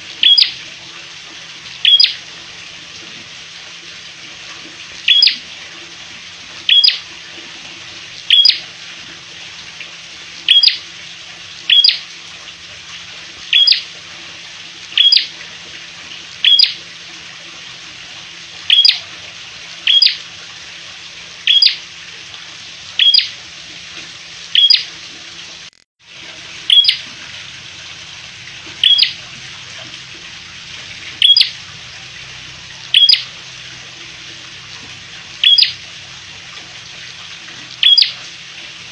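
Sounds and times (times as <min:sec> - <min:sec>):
bird calling sharply: 0:01.8 - 0:02.2, 0:05.1 - 0:05.4, 0:13.5 - 0:13.8.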